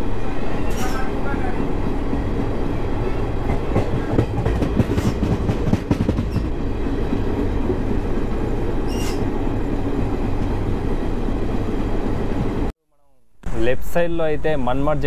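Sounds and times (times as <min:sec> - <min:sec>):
train rumbling on track: 0:00.0 - 0:12.7
high-pitched train squeal: 0:00.2 - 0:01.8, 0:08.8 - 0:09.3.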